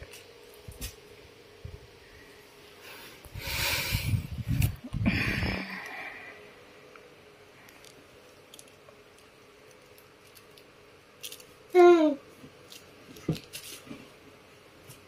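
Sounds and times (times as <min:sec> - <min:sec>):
faint steady hum: 0:00.0 - 0:15.0
rustling and rubbing noise: 0:12.3 - 0:14.2.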